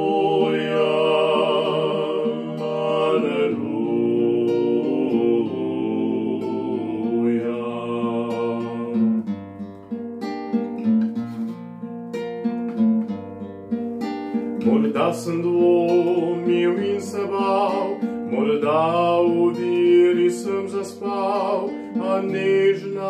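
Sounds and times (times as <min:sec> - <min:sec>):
men singing in harmony: 0:00.0 - 0:09.2, 0:14.6 - 0:23.0
classical guitar: 0:00.0 - 0:23.0.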